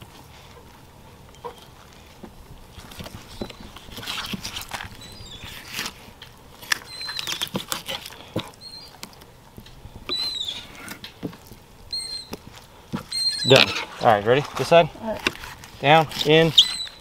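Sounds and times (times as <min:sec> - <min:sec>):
knife slicing and scraping fish: 0:03.0 - 0:08.2.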